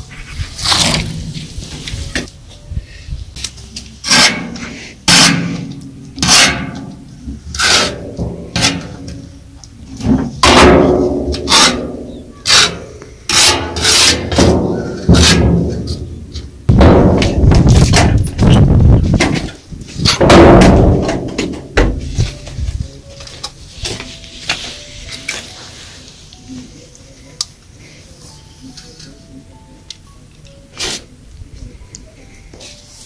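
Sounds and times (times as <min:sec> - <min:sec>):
metal ladle scraping metal pot: 0:07.5 - 0:09.2, 0:11.4 - 0:16.1.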